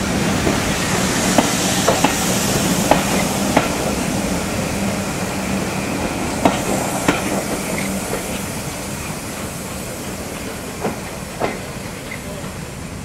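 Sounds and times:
train coaches rumbling past: 0:00.0 - 0:13.0
wheels clicking over rail joints: 0:09.4 - 0:12.6.

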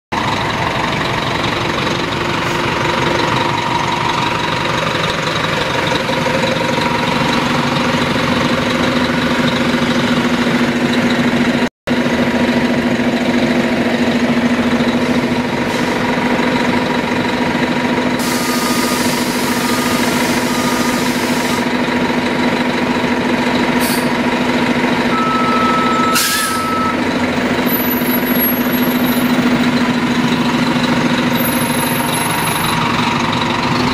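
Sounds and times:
bus engine hum with whine: 0:00.1 - 0:33.9
short beeps: 0:25.1 - 0:27.0.

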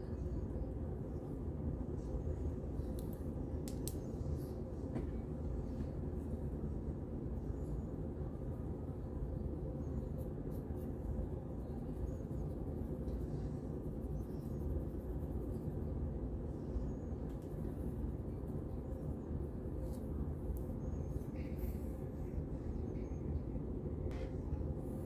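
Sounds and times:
low rumble: 0:19.8 - 0:25.0.

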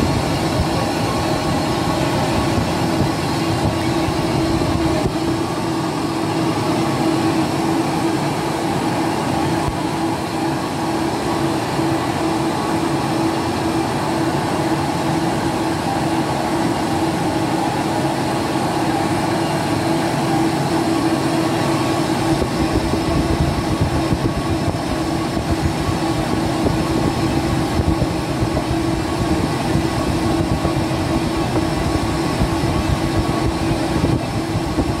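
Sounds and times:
lathe mechanical drone: 0:00.0 - 0:35.0.

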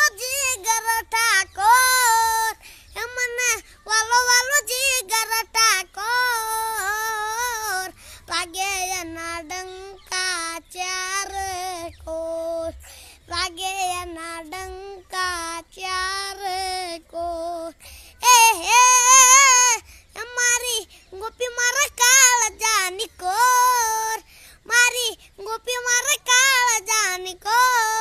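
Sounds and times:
child singing: 0:00.0 - 0:28.0.

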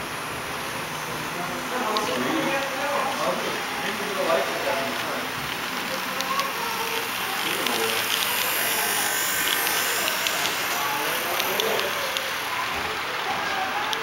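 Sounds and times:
small electric motors whirring: 0:00.0 - 0:14.0
model train wheels rattling: 0:04.8 - 0:14.0.

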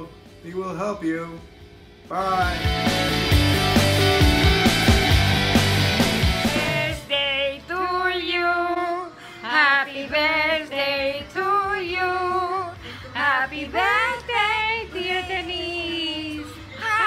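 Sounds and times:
women singing together: 0:06.5 - 0:17.0.

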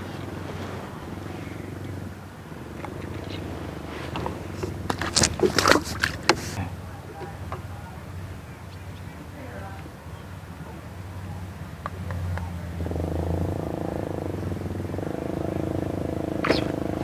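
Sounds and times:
steady low hum: 0:00.0 - 0:17.0
sharp clicks and rattles: 0:02.7 - 0:07.7.

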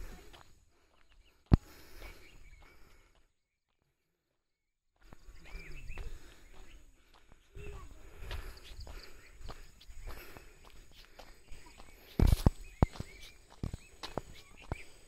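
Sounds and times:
outdoor ambience: 0:00.0 - 0:15.0
scuffing noise: 0:08.3 - 0:15.0.

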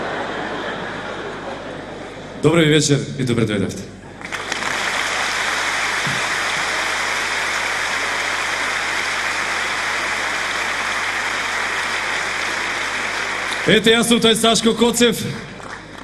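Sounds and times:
audience applauding: 0:04.2 - 0:16.0.

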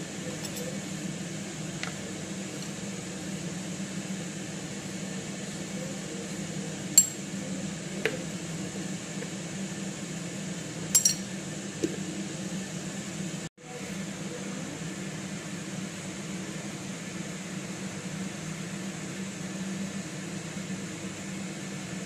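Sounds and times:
kitchenware clinking on metal bowl: 0:07.0 - 0:07.2, 0:11.0 - 0:11.3.

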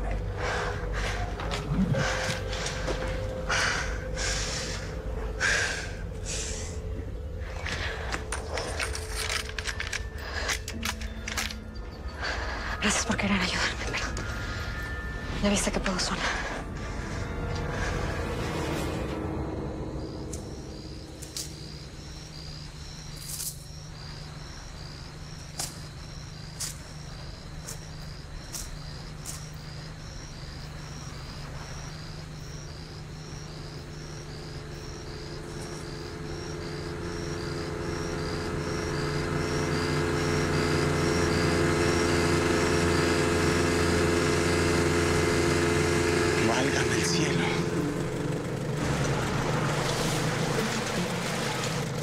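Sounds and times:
insect chirping: 0:00.0 - 0:52.0
motorboat engine running: 0:16.2 - 0:52.0.

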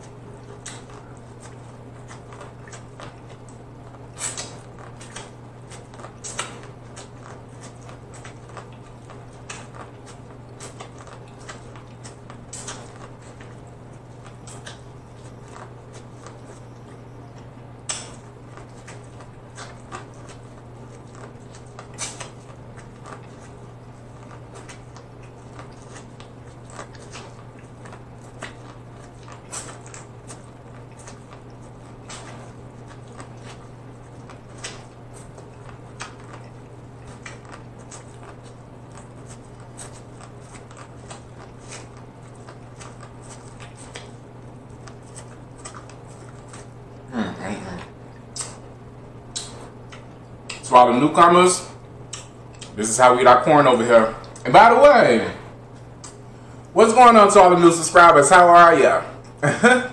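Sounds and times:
chewing corn on the cob: 0:00.0 - 0:53.0
wet mouth clicks: 0:17.8 - 0:18.2, 0:48.1 - 0:48.6, 0:49.3 - 0:50.6, 0:52.1 - 0:52.8, 0:56.0 - 0:56.2.

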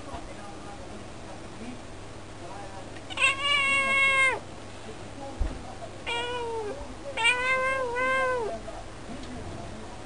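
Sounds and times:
cat meowing: 0:03.1 - 0:04.4, 0:06.0 - 0:08.6.

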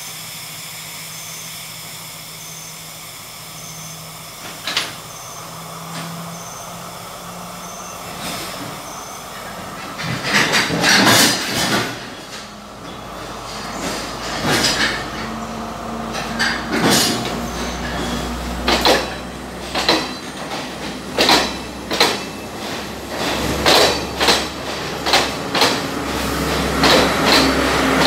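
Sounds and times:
train wheels knocking over rail joints: 0:08.0 - 0:28.0.

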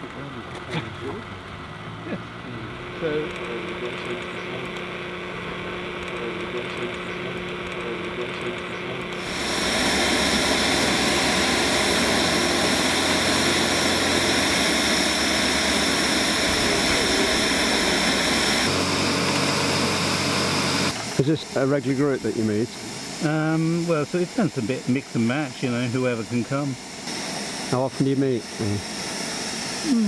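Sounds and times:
electric fan whirring: 0:00.0 - 0:30.0.

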